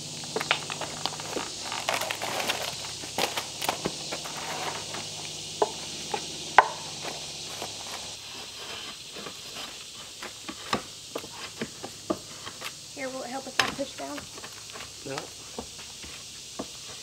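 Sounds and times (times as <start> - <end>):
drawknife scraping bark: 7.5 - 11.7.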